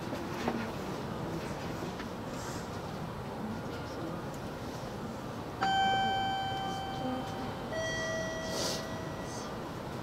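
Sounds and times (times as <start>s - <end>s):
two-tone chime: 5.6s - 9.7s
short hiss: 8.5s - 8.8s.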